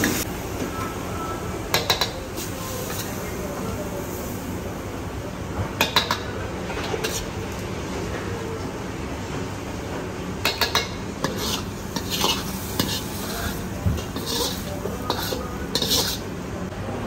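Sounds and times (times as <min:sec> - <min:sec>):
utensils and dishes clinking: 0:10.4 - 0:16.3.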